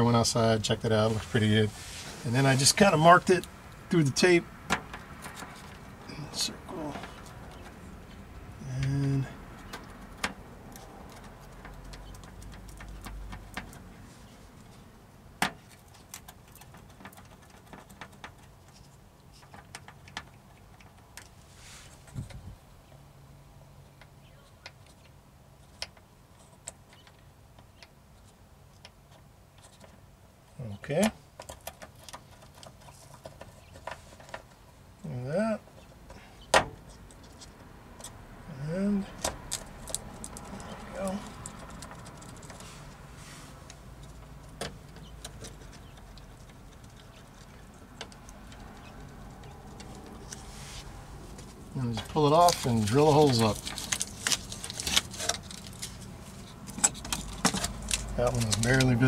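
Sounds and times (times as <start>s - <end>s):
pencil clicks and taps: 9.6s - 13.9s.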